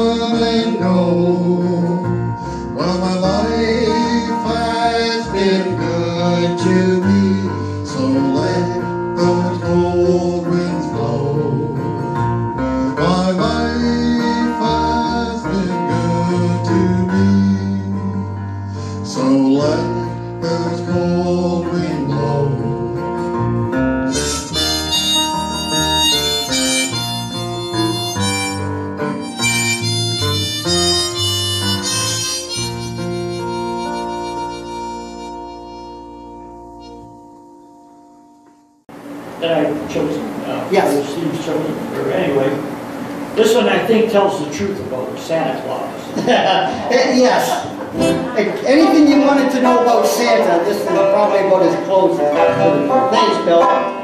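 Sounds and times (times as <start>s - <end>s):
electric bass: 0.0s - 44.0s, 45.9s - 49.6s
harmonica solo: 24.0s - 38.8s, 48.0s - 54.0s
strummed acoustic guitar: 47.7s - 54.0s.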